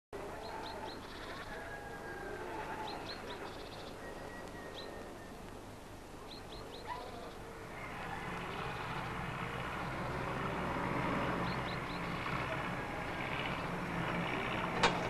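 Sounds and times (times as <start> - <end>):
small birds chirping: 0.2 - 1.7, 2.6 - 14.8
machinery engine hum: 7.2 - 15.0.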